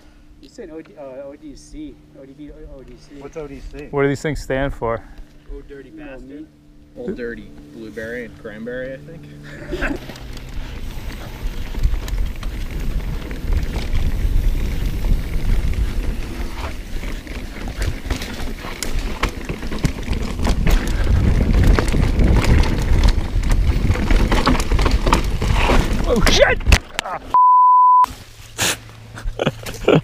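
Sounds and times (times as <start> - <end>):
bike rattling: 7.2 - 27.0
tyres over dirt and rocks: 9.5 - 27.2
wind noise on microphone: 10.6 - 18.1, 20.1 - 26.8.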